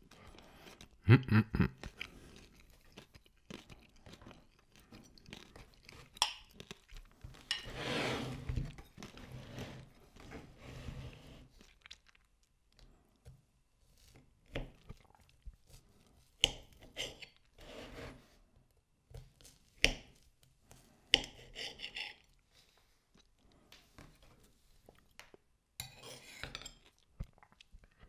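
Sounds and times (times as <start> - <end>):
crunchy food being eaten: 1.8 - 7.4
cutlery scraping: 7.4 - 9.8, 21.2 - 22.3, 25.8 - 26.8.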